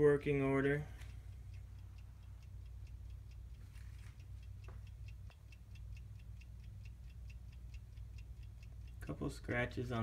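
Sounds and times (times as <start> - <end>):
wall clock ticking faintly: 0.0 - 10.0.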